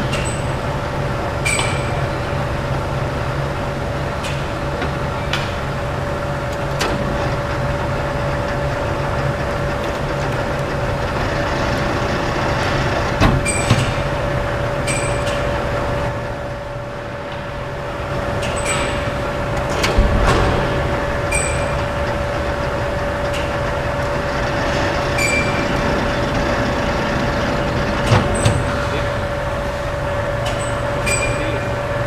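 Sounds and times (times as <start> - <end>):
low hum: 7.2 - 31.9
metal lathe whine: 20.9 - 28.0.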